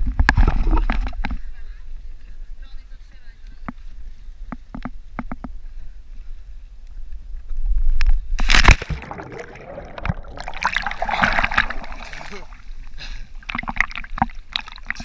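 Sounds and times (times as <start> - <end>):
loud splash into water: 8.4 - 12.6
water sloshing and splashing: 8.4 - 15.0
muffled underwater bubbling: 8.8 - 15.0.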